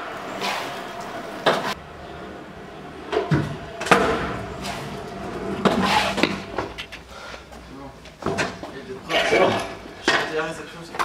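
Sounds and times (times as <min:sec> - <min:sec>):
scooter wheels rumbling on concrete: 0:00.0 - 0:11.0.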